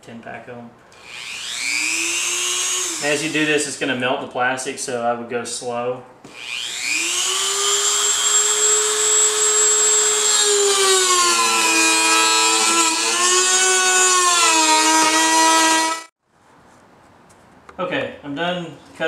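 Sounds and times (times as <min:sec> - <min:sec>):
rotary tool cutting plastic: 0:06.3 - 0:16.1.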